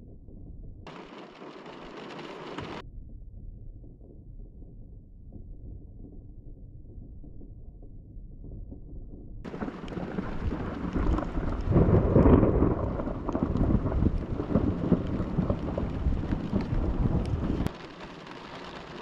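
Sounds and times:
thunder rumbling: 0.6s - 2.8s, 9.4s - 19.0s.

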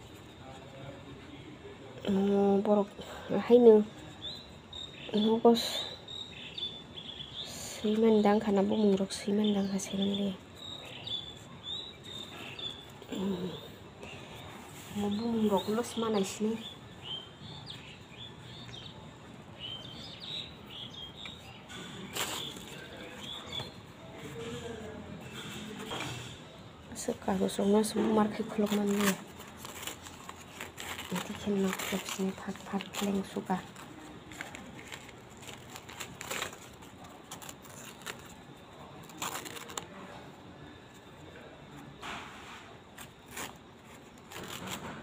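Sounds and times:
small birds chirping: 0.1s - 41.9s
newspaper crinkle: 9.0s - 26.3s, 27.2s - 45.0s.

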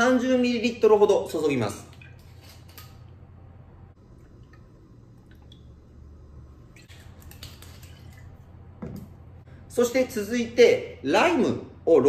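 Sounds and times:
liquid trickling over ice: 4.0s - 8.5s.

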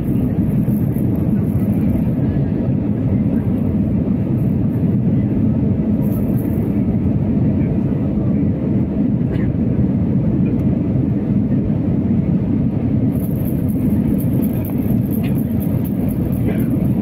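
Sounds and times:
airplane cabin engine rumble: 0.0s - 17.0s.

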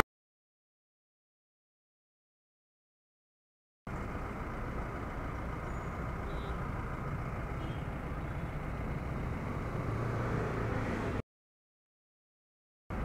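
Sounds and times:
vehicle engines running and idling: 3.9s - 11.2s.

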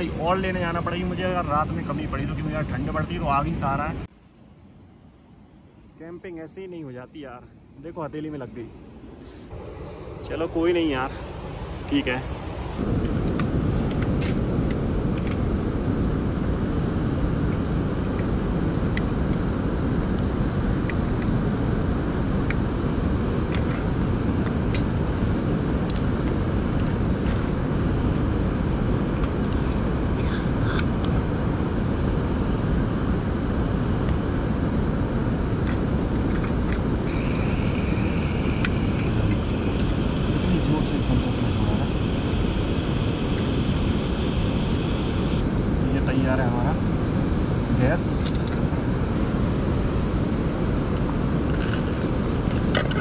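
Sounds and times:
mountain river rushing: 0.0s - 4.0s
gas hissing from stove burner: 9.5s - 12.8s, 37.0s - 45.5s.

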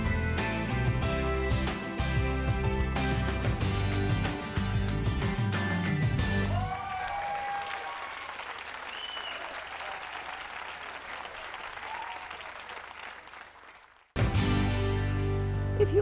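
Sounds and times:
crowd applauding: 6.2s - 14.3s.

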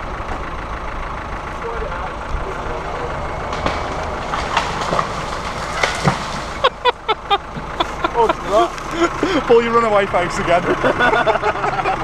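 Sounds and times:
engine running steadily: 0.0s - 12.0s
tree cracking and falling: 3.2s - 7.0s.

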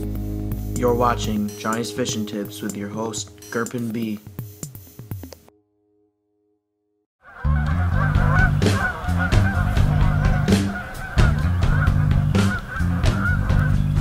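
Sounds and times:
geese honking: 7.2s - 14.0s.

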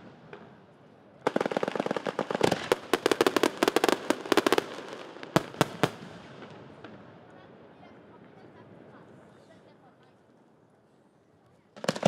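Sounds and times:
fireworks popping: 1.2s - 7.0s, 11.8s - 12.0s
loud fireworks bangs: 1.2s - 8.9s, 11.8s - 12.0s.

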